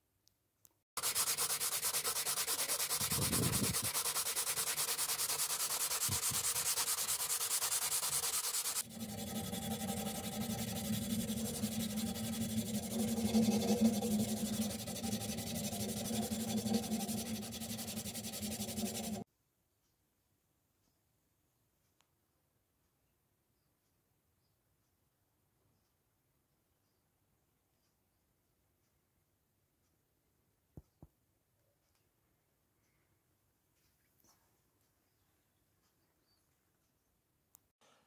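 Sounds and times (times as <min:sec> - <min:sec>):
abrasive cloth rasping on steel bar: 0:01.0 - 0:19.2
hand sanding steel: 0:01.0 - 0:19.2.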